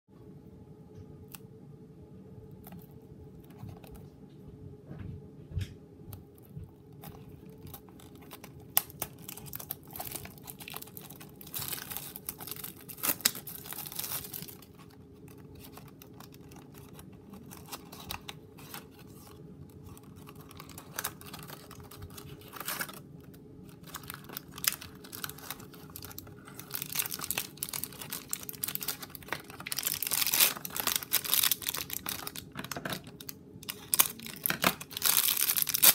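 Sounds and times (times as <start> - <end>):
faint steady hum: 0.1 - 35.9
cardboard and plastic crinkling: 2.7 - 4.1, 6.2 - 35.9.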